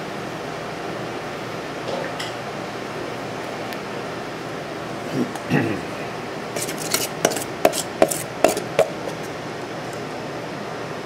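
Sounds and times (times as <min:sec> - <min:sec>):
metal scoop scraping steel bowl: 0:06.6 - 0:09.3.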